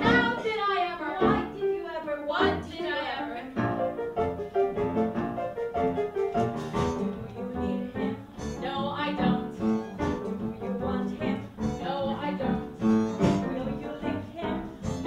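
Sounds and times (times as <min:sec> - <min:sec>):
woman singing: 0:00.0 - 0:03.7, 0:06.7 - 0:15.0
piano accompaniment: 0:00.0 - 0:15.0.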